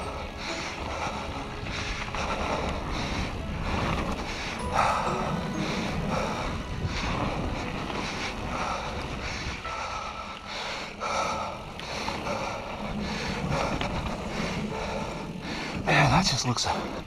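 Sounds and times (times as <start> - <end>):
wind on microphone: 0.0 - 10.4
heavy breathing: 0.0 - 15.9
tyres on dirt trail: 0.0 - 17.0.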